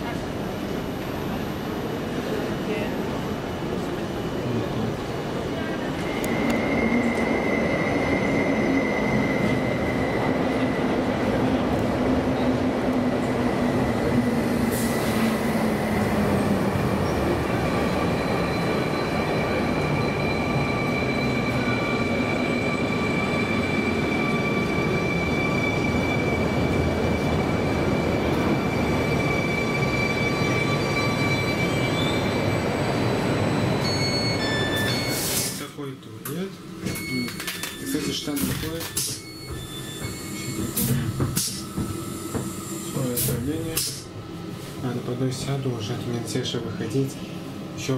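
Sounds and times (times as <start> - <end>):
high wheel squeal: 17.0 - 35.6, 39.0 - 43.4.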